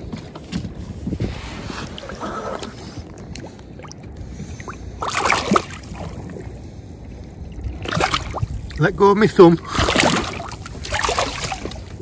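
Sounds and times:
low rush of water and wind: 0.0s - 12.0s
water sloshing and splashing: 0.0s - 12.0s
fish splashing: 1.9s - 6.6s, 7.4s - 8.6s, 9.6s - 12.0s.

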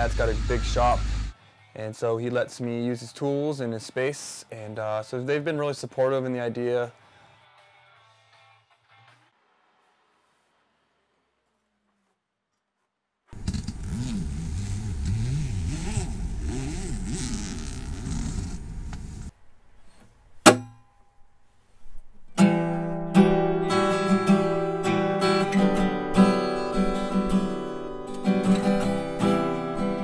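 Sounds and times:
zipper being drawn open: 13.4s - 19.3s
sharp knock: 20.4s - 20.9s
acoustic guitar strummed: 20.4s - 21.3s, 22.3s - 30.0s.

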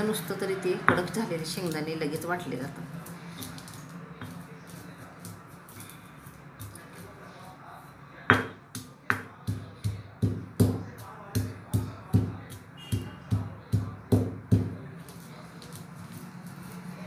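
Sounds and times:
stone pestle pounding in mortar: 0.8s - 1.2s, 8.3s - 14.8s.

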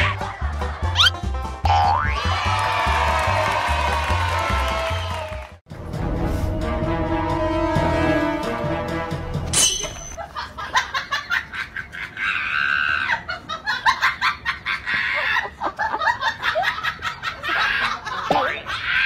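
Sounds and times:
laughter: 10.2s - 19.0s.

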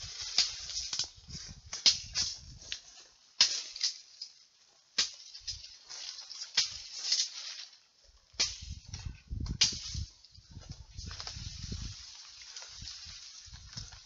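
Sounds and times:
rustling of brush and bamboo: 0.0s - 14.0s
stems snapping: 0.2s - 4.4s, 5.0s - 7.6s
microphone jostling rumbles: 8.7s - 12.0s.

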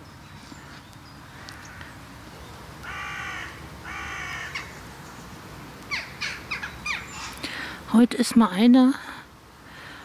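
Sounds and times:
crow cawing: 0.6s - 1.9s, 2.8s - 4.8s.

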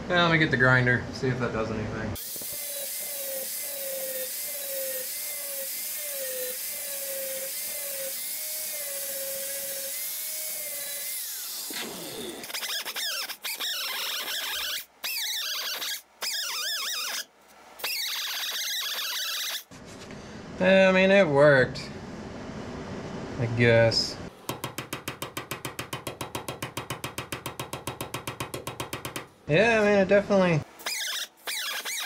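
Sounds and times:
grinder on sheet metal: 2.2s - 17.3s.

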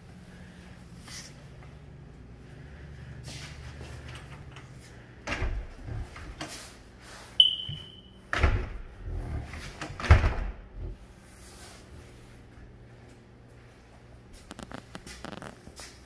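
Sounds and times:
short ringing ping: 7.4s - 8.2s.

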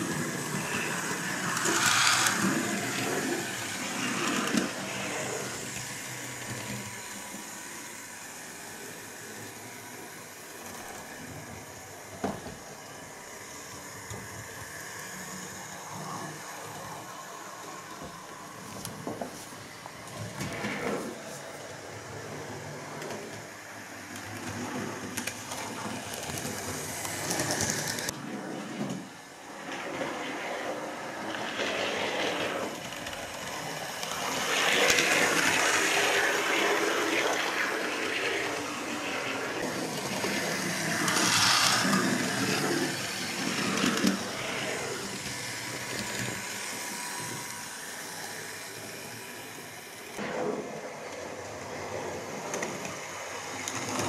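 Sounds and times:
small electric motor whirring: 0.0s - 18.0s, 30.6s - 50.2s.

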